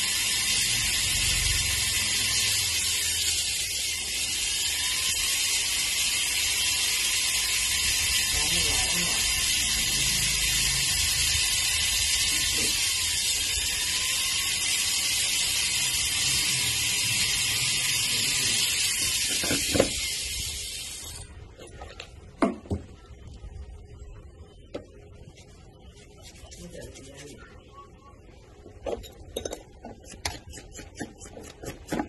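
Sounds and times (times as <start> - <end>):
engraving pen hissing on metal: 0.0 - 21.2.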